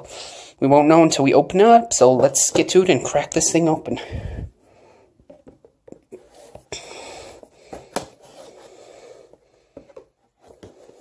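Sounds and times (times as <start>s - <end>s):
cardboard scraping: 7.8s - 8.8s, 9.8s - 11.0s.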